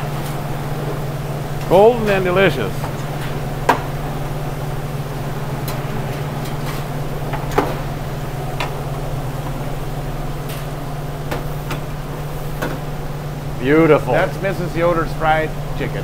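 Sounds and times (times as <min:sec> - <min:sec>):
kitchen equipment hum: 0:00.0 - 0:16.0.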